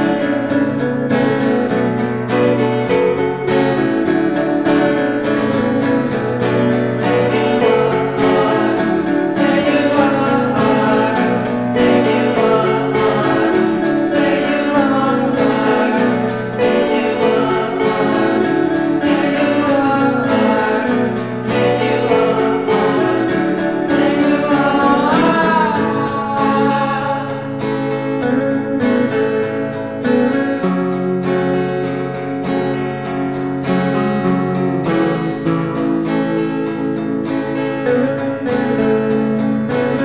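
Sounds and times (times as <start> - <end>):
guitar: 0.0 - 40.0
person singing: 7.0 - 28.5.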